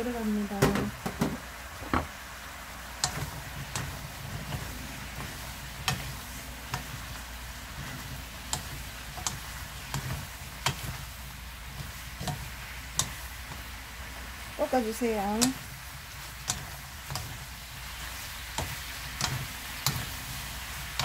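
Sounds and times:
vegetables sizzling in frying pan: 0.0s - 21.0s
spatula clicking against pan: 3.0s - 7.3s, 8.4s - 11.0s, 11.8s - 13.7s, 15.4s - 15.6s, 16.4s - 17.4s, 18.4s - 20.2s.

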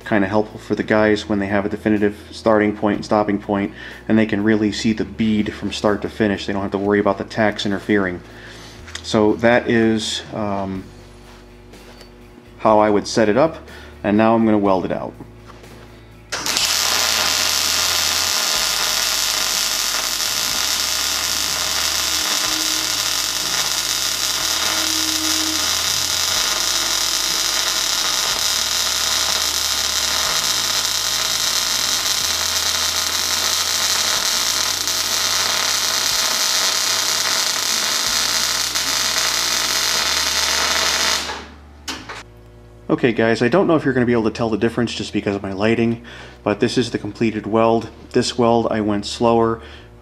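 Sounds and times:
arc welder crackling hiss: 15.6s - 42.3s.

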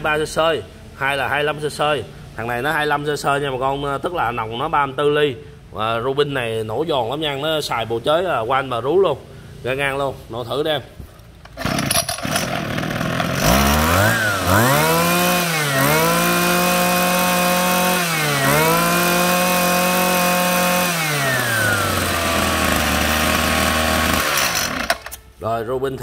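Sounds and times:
brush cutter engine revving: 11.4s - 25.2s.

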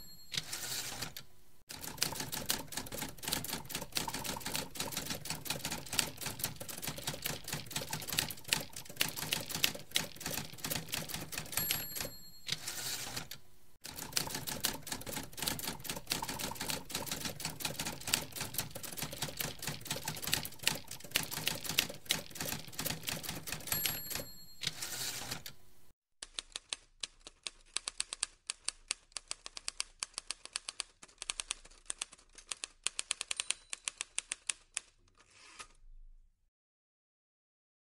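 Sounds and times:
typewriter carriage bell: 0.0s - 1.1s, 1.8s - 13.4s, 14.0s - 25.5s, 33.2s - 34.2s
typewriter carriage return: 0.0s - 25.6s.

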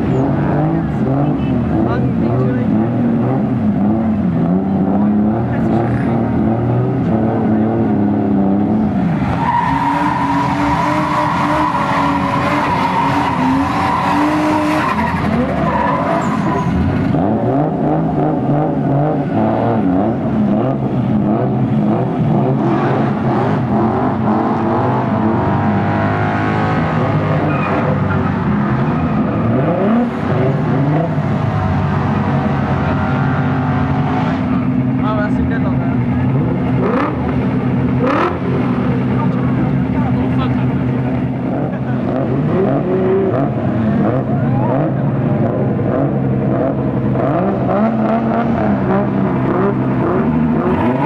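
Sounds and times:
car engines revving: 0.0s - 51.0s
tyres squealing and skidding: 8.7s - 19.5s, 21.9s - 34.9s.

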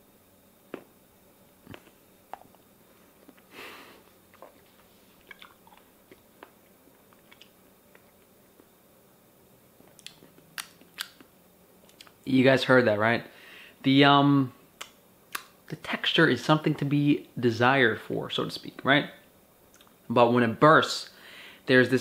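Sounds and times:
mouth chewing clicks and smacks: 4.3s - 8.7s, 9.9s - 12.2s, 19.7s - 20.0s.

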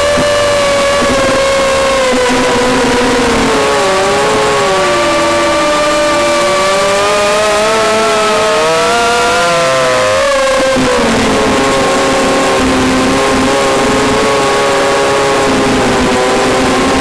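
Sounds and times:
model airplane motor whine: 0.0s - 17.0s.

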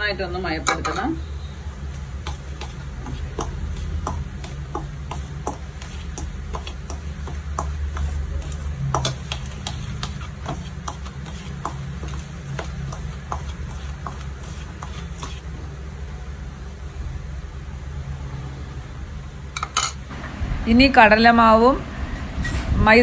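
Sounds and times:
metal spoon scraping steel bowl: 2.2s - 15.5s
low steady hum: 18.9s - 23.0s.

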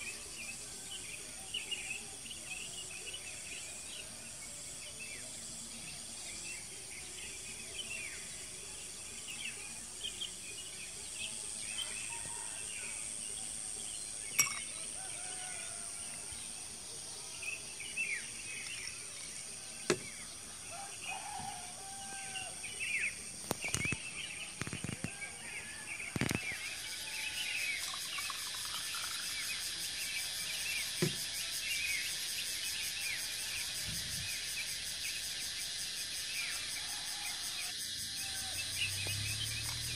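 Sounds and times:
pulsing insect chorus: 0.0s - 39.9s
high insect drone: 24.7s - 39.9s.

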